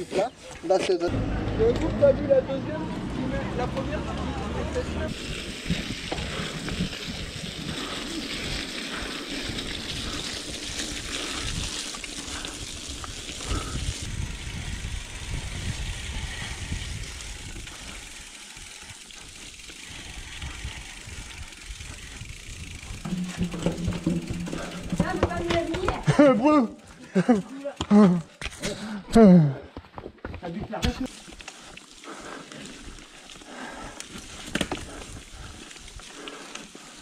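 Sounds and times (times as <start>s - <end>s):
mountain bike rolling on track: 0.0s - 28.6s, 30.5s - 37.0s
wind buffeting microphone: 5.1s - 18.2s, 19.8s - 26.1s.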